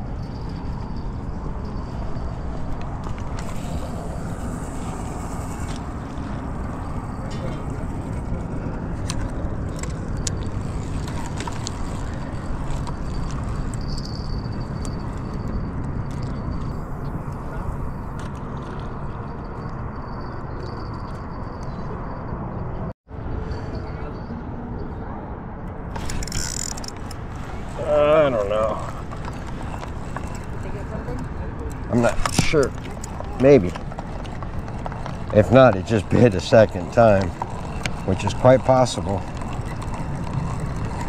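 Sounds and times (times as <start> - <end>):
wind buffeting microphone: 25.8 - 41.0
fishing reel clicks: 26.0 - 27.2, 36.2 - 41.0.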